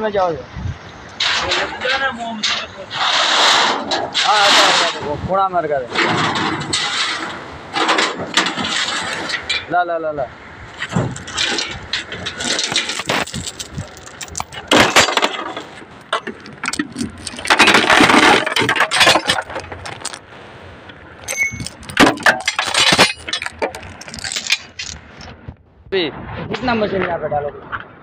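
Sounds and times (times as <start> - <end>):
steel chains clanking on truck bed: 10.8 - 20.3, 21.2 - 25.2.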